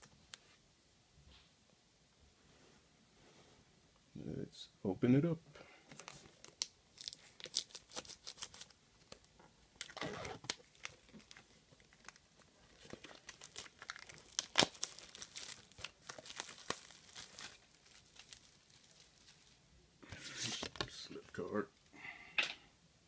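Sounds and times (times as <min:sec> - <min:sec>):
plastic wrap crinkling: 0:05.9 - 0:21.5.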